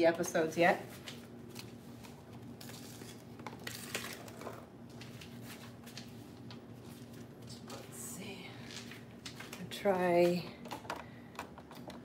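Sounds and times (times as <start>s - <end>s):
faint steady hum: 0.0s - 12.0s
objects clicking on kitchen counter: 10.4s - 12.0s.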